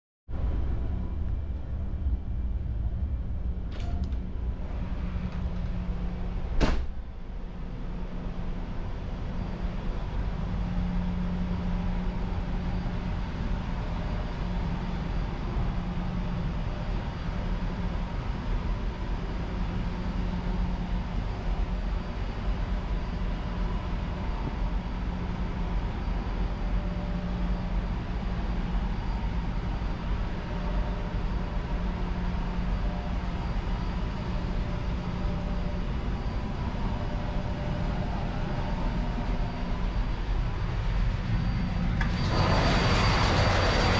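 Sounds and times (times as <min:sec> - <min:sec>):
muffled engine room machinery drone: 0:00.3 - 0:43.9
sharp thump: 0:06.6 - 0:07.0.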